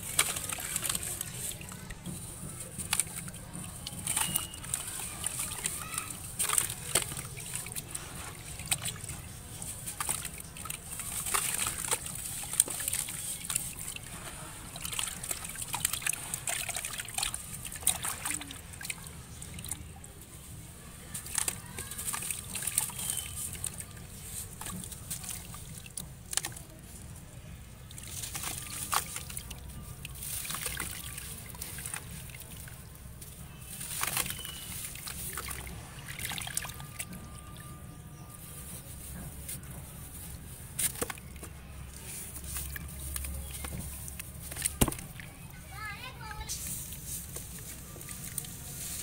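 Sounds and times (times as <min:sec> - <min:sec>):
water sloshing in basin: 0:00.0 - 0:49.0
small splashes in water: 0:27.9 - 0:37.7.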